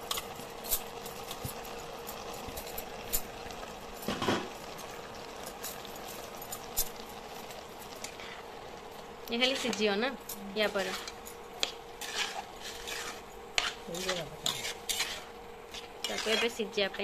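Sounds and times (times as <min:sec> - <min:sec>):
gravy bubbling in a pan: 0:00.0 - 0:17.0
spatula scraping a pan: 0:08.0 - 0:08.6, 0:09.3 - 0:16.8.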